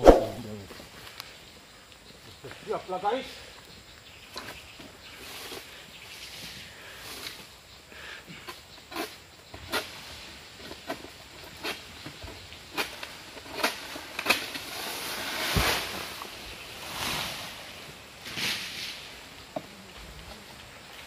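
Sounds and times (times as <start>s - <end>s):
rustling of fronds: 0.0s - 21.0s
sickle cutting sharp cracks: 12.7s - 14.7s
frond crashing with thud: 14.9s - 16.2s.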